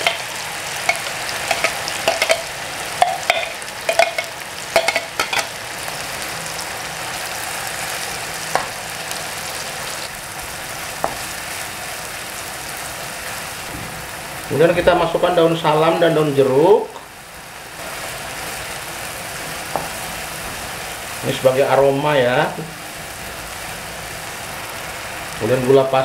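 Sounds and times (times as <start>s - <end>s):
spoon clicking and scraping pan: 0.0s - 5.5s
paste sizzling in hot oil: 0.0s - 14.6s, 15.6s - 26.0s.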